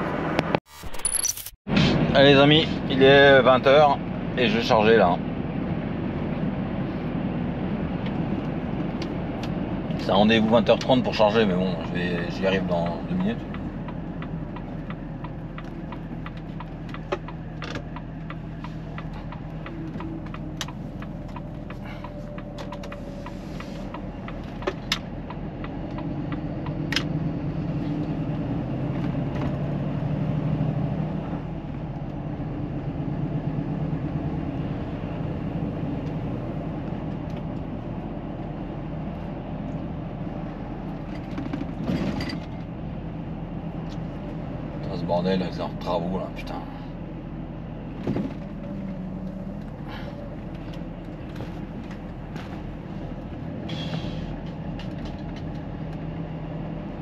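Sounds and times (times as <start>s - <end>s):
road rumble: 0.0s - 57.0s
diesel engine running: 1.7s - 57.0s
cab clicks and rattles: 54.4s - 56.0s.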